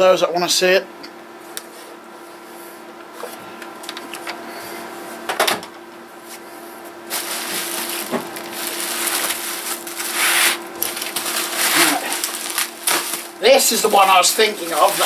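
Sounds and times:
steady background hum: 0.0 - 15.0
bubble wrap crinkling: 7.0 - 15.0.

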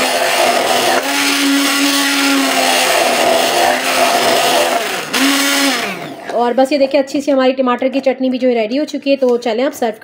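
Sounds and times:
stick blender motor whine: 0.0 - 6.5.

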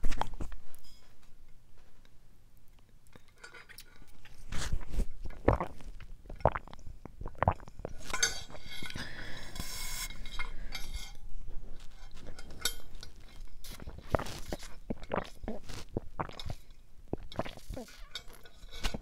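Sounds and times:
wet mouth clicks: 5.4 - 8.1, 13.7 - 18.3
sipping through a straw: 13.6 - 16.6, 17.2 - 19.0.

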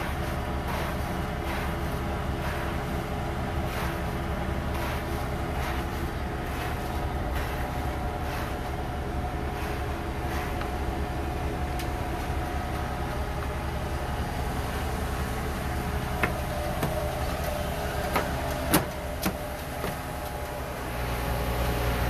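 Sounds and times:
diesel engines running: 0.0 - 22.0.

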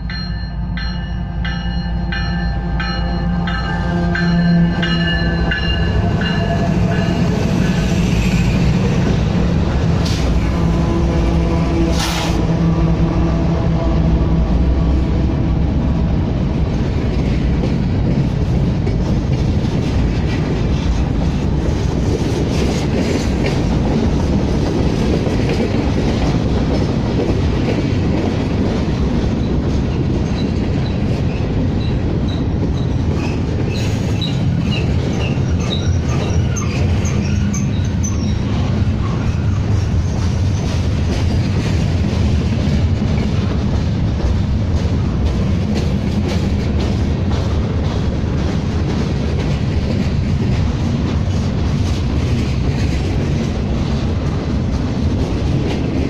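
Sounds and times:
train cars rumbling: 0.0 - 56.0
high wheel squeals: 33.7 - 40.3.

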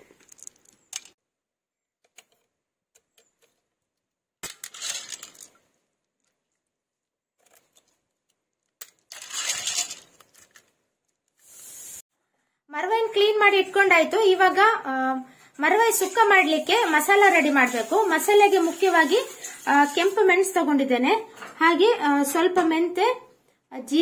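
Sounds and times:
shells clattering and crunching: 0.0 - 1.2, 4.4 - 5.6, 8.6 - 10.7.

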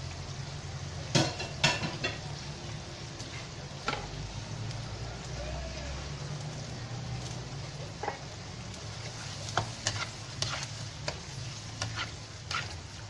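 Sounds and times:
steady sizzle: 0.0 - 13.0
spatula scraping and clacking on wok: 7.2 - 13.0.

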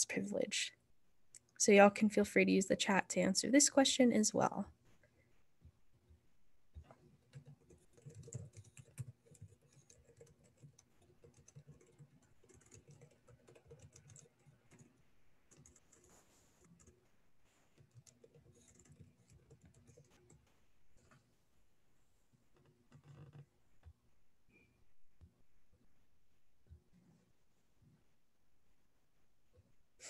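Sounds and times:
faint keyboard typing: 4.4 - 21.3, 22.3 - 25.8.

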